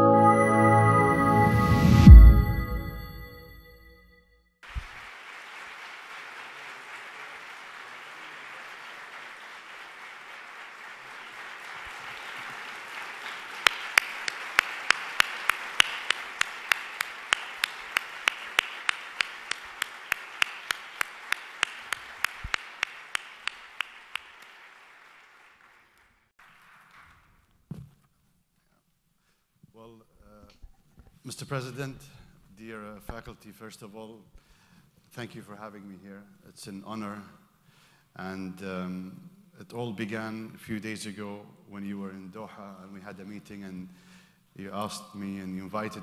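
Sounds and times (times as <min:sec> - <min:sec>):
audience applauding: 0:04.6 - 0:27.2
close loud hand claps: 0:04.6 - 0:27.2.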